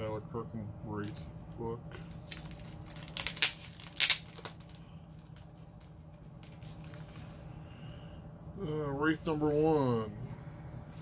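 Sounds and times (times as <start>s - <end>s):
plastic bag crinkling: 1.0s - 7.2s
loud plastic rustles: 1.9s - 7.4s
tape tearing: 2.0s - 7.0s.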